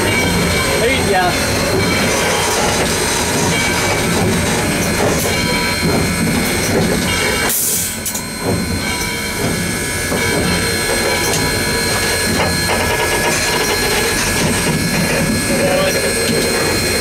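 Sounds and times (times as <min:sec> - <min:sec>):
steam locomotive rumble and rattle: 0:00.0 - 0:17.0
steam hiss: 0:07.4 - 0:08.3.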